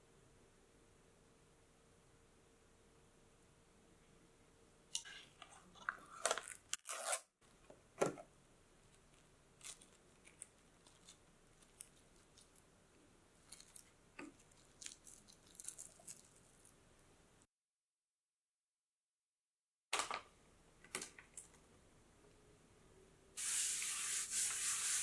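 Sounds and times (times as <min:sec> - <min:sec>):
cling film tearing and crinkling: 0:06.2 - 0:07.3.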